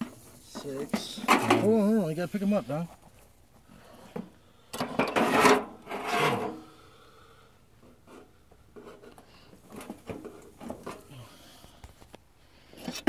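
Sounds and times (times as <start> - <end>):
rocks scraping in metal tub: 0.0 - 2.9, 3.9 - 6.8, 7.8 - 11.4.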